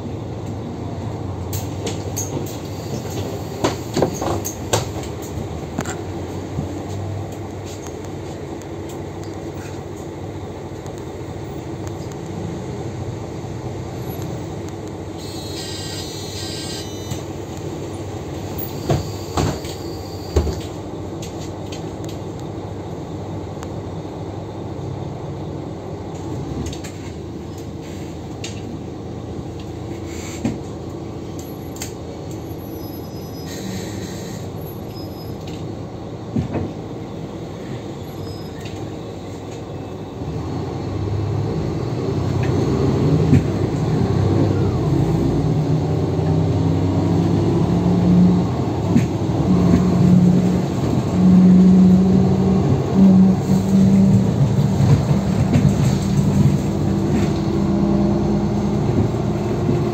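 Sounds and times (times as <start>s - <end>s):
bus engine drone: 0.0s - 59.9s
road noise: 0.0s - 59.9s
brief high tone: 15.2s - 17.2s.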